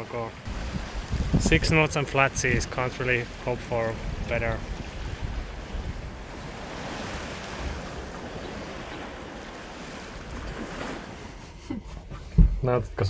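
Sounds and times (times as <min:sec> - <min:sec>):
water rushing along hull: 0:00.0 - 0:12.5
wind buffeting microphone: 0:00.3 - 0:11.4.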